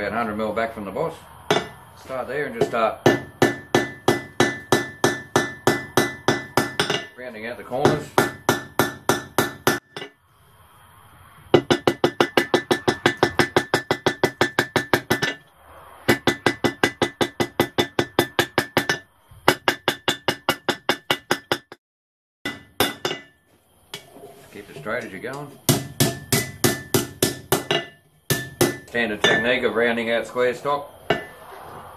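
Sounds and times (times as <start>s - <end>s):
hammer striking steel on anvil: 1.5s - 1.8s, 2.5s - 10.2s, 11.6s - 15.4s, 16.1s - 21.8s, 22.5s - 23.4s, 25.0s - 29.6s, 31.1s - 31.4s.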